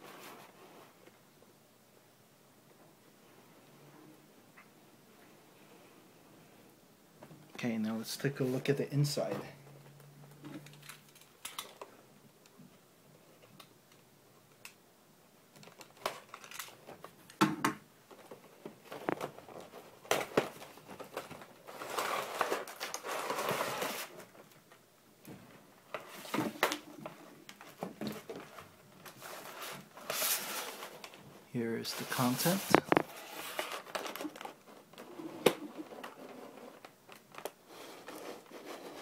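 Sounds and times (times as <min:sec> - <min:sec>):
plastic packaging crinkling: 0:15.5 - 0:17.4, 0:18.1 - 0:24.6, 0:31.9 - 0:38.2.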